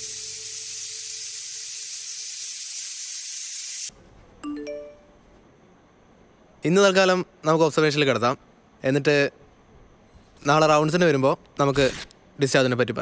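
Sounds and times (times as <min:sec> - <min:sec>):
steady hiss: 0:00.0 - 0:04.0
faint music: 0:04.0 - 0:05.5
rising chime notes: 0:04.4 - 0:05.4.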